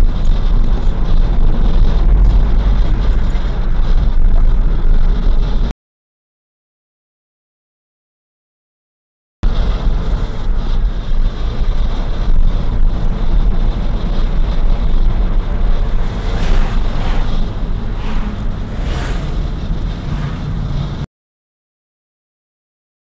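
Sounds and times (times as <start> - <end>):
car engine and tyre rumble: 0.0 - 5.7, 9.4 - 21.1
oncoming vehicles passing: 12.6 - 21.0.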